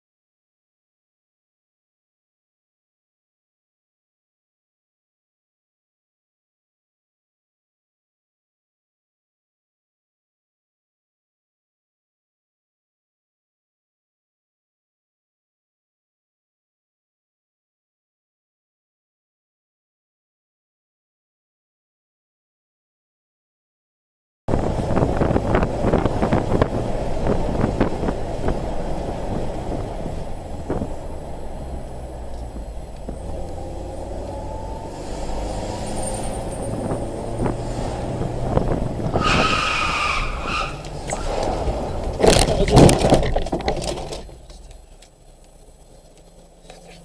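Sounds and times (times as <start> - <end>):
car engine and road noise: 24.5 - 47.0
car crash impacts: 39.2 - 45.0.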